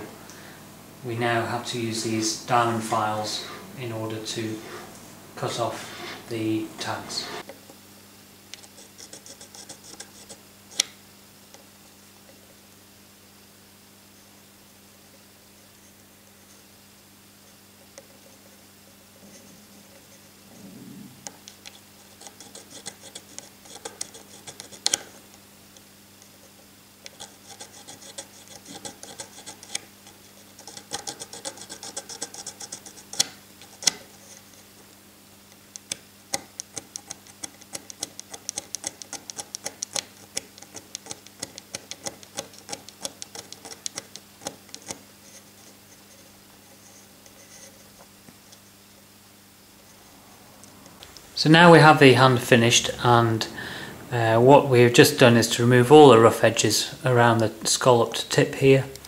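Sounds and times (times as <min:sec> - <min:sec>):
needle file scraping metal: 0:04.5 - 0:07.5, 0:08.6 - 0:10.8, 0:21.6 - 0:25.2, 0:26.2 - 0:34.7, 0:36.5 - 0:48.6.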